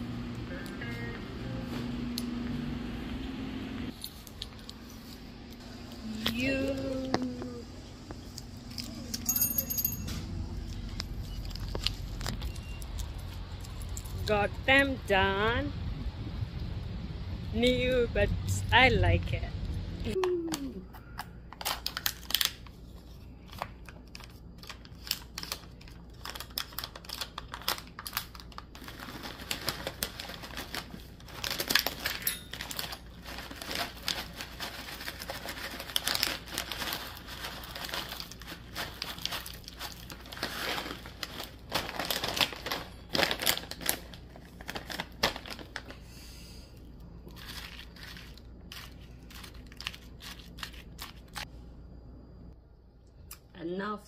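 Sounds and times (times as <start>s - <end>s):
plastic pouch crinkling and tearing: 21.6s - 22.8s, 23.4s - 46.0s, 47.3s - 51.5s.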